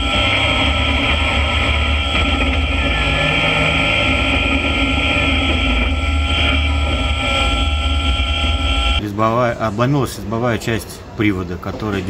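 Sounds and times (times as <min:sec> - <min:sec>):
vehicle engine running: 0:00.0 - 0:09.0.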